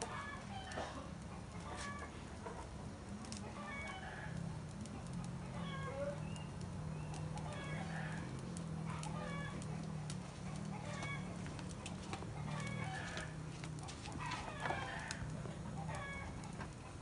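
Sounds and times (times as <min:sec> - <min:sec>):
chickens clucking: 0:08.9 - 0:17.0.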